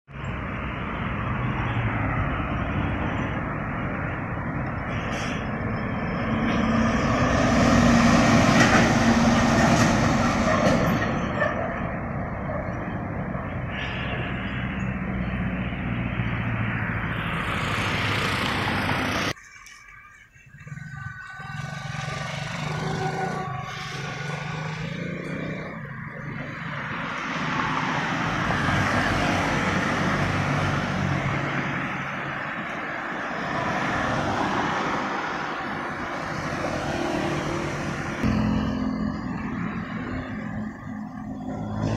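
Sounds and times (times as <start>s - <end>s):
trucks driving past: 0.1s - 41.9s
quieter vehicle engine: 12.1s - 32.8s.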